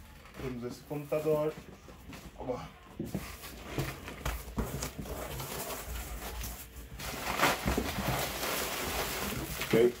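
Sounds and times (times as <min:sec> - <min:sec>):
cardboard rustling and scraping: 0:03.0 - 0:10.0.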